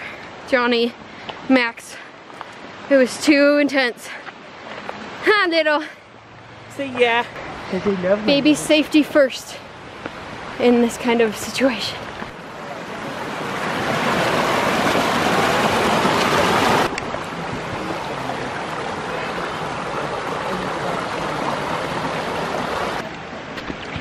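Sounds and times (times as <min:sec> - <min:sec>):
creek rushing over rocks: 0:00.0 - 0:24.0.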